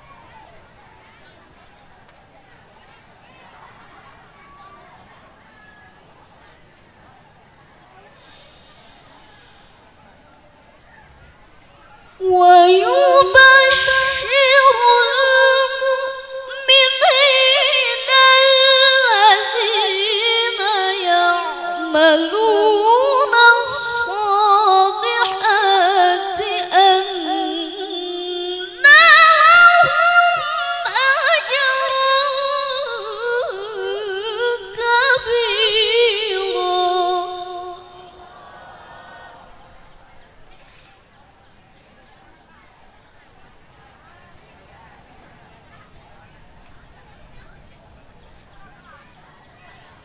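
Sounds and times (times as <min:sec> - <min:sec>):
woman reciting melodically into microphone: 0:12.2 - 0:38.6.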